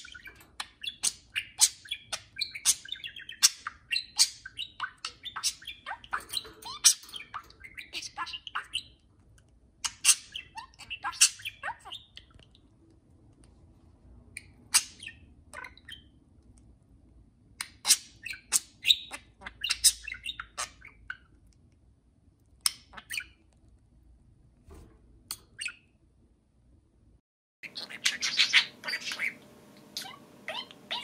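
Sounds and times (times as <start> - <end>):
budgerigars chirping and squawking: 0.0 - 9.0, 9.8 - 12.4, 14.4 - 16.2, 17.6 - 21.4, 22.7 - 23.5, 27.6 - 31.0.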